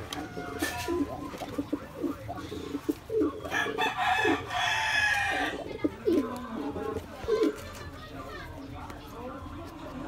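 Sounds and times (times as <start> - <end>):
pigeons cooing: 0.0 - 7.9
rooster crowing: 3.5 - 5.5.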